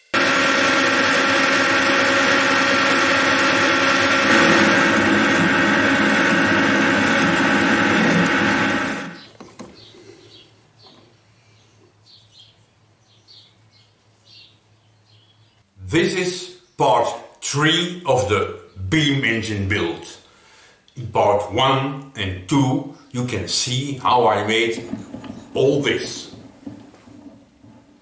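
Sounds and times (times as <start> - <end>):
metal lathe running: 0.0 - 9.3.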